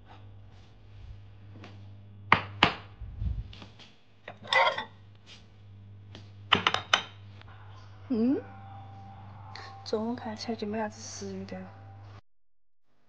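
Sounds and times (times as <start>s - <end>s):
low steady hum: 0.0s - 12.2s
glass containers clinking: 4.3s - 4.9s.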